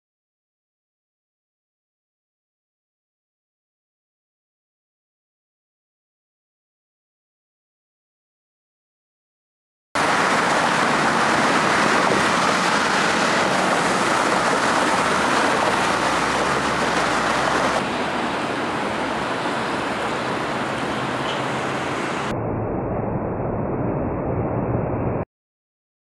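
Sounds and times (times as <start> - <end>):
road traffic rush: 10.0 - 22.4.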